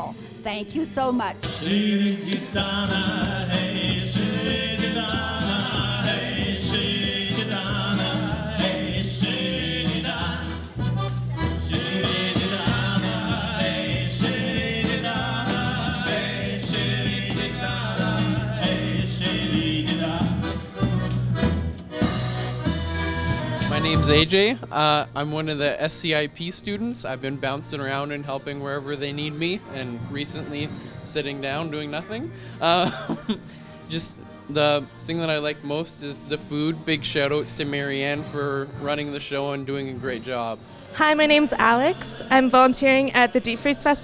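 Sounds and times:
acoustic guitar: 1.2s - 26.1s
accordion: 1.2s - 44.0s
men singing: 1.4s - 11.0s, 11.6s - 21.1s, 41.6s - 44.0s
bass drum beat: 1.4s - 24.4s
electric bass: 2.6s - 24.8s.

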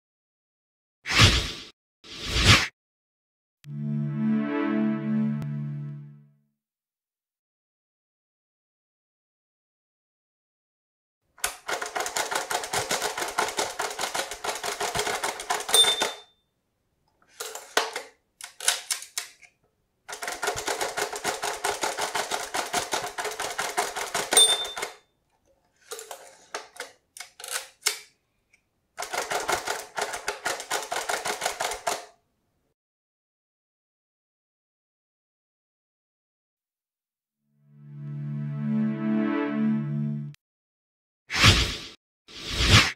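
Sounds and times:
typewriter keystrokes: 11.4s - 16.2s, 20.1s - 25.0s, 29.0s - 32.1s
typewriter bell ding: 15.5s - 16.4s, 24.0s - 25.0s.

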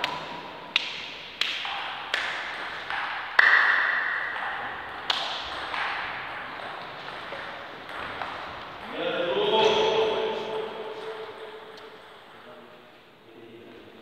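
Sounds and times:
table tennis ball hits: 0.0s - 9.0s.

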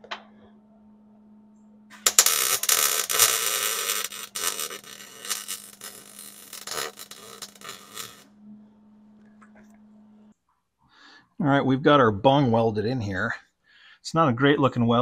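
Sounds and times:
welder arc crackling: 2.0s - 8.3s.

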